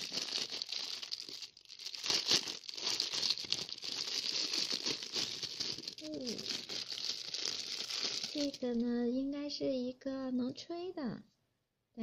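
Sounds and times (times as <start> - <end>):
plastic bag crinkling: 0.0 - 8.8.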